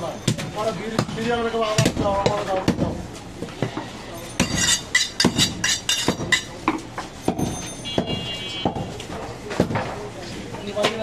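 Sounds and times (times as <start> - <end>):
cleaver striking chopping block: 4.4 - 8.9.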